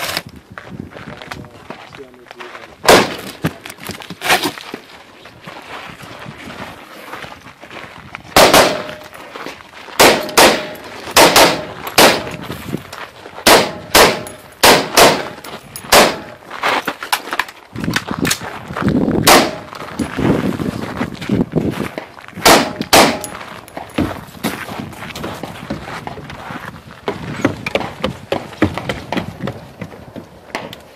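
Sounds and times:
rifle gunshots: 2.9s - 3.3s, 8.4s - 9.0s, 10.0s - 12.4s, 13.4s - 16.4s, 19.2s - 19.7s, 22.4s - 23.4s.

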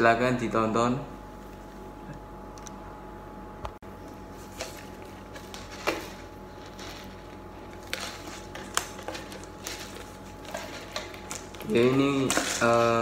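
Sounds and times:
plastic wrapping crinkling: 4.4s - 13.0s.

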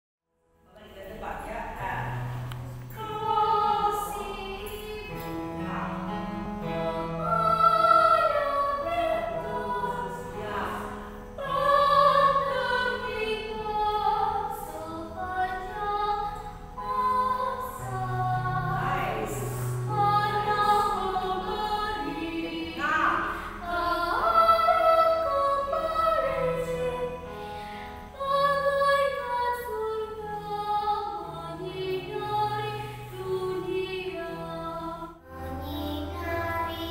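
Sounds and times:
electronic keyboard chords: 1.6s - 28.3s
woman singing: 3.0s - 6.0s, 7.2s - 27.2s, 28.2s - 35.2s.

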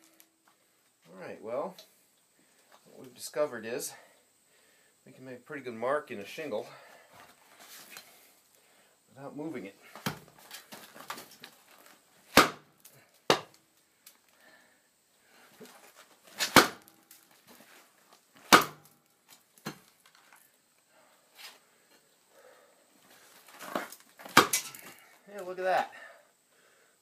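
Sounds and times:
heavy impacts on shingle: 12.3s - 12.7s, 13.3s - 13.6s, 16.3s - 17.0s, 18.4s - 18.9s, 23.6s - 25.0s.

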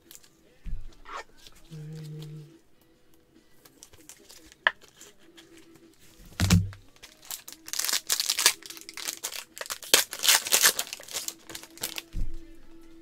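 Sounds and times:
foil wrapper crinkling: 6.5s - 12.1s.

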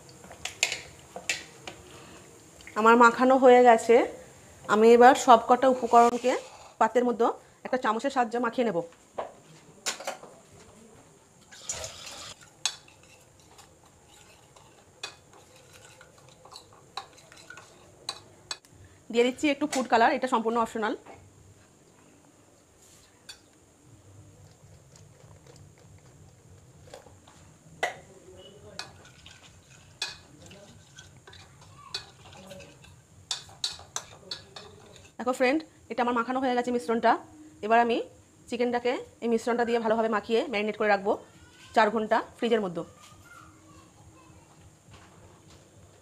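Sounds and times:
spoon scraping plate: 11.5s - 18.3s.

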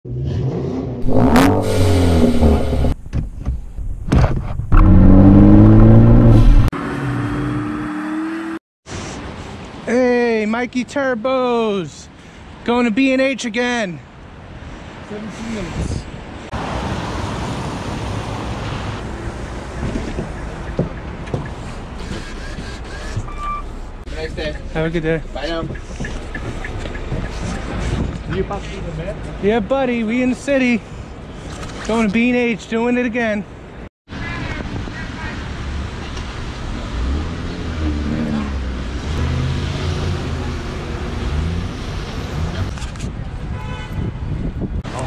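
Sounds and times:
car engine revving: 0.1s - 3.0s, 4.7s - 8.6s, 36.7s - 42.7s
wind and road noise: 0.1s - 45.0s
high beep: 23.3s - 23.7s.

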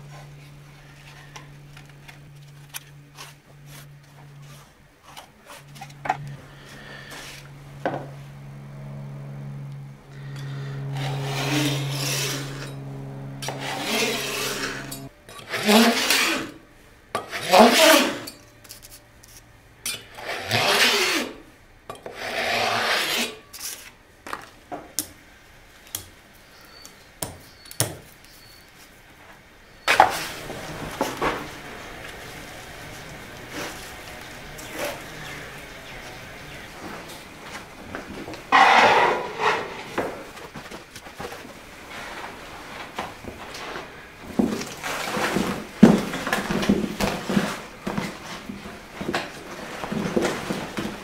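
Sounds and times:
saw scraping through wood veneer: 0.0s - 16.6s, 17.2s - 19.0s, 20.0s - 23.9s, 29.9s - 51.0s
low steady hum: 0.0s - 17.3s, 29.0s - 51.0s.

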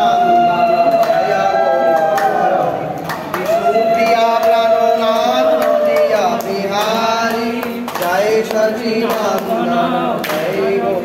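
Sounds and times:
group singing a chant: 0.0s - 11.0s
hand claps: 1.9s - 9.6s, 10.2s - 10.7s.

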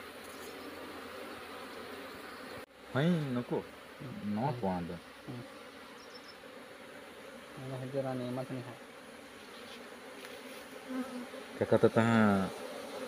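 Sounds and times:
honey bees buzzing: 0.0s - 13.0s
hive frames being handled: 7.8s - 11.3s.

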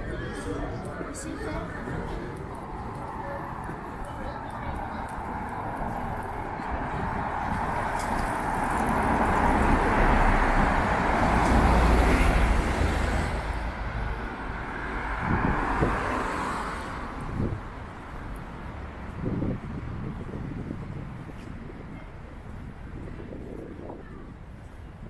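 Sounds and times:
car passing by: 5.4s - 17.6s.

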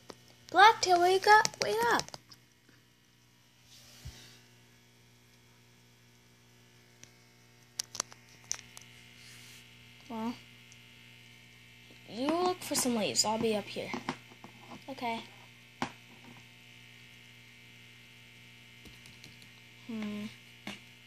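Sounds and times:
low electrical hum: 0.0s - 21.0s
person humming: 19.8s - 20.4s.

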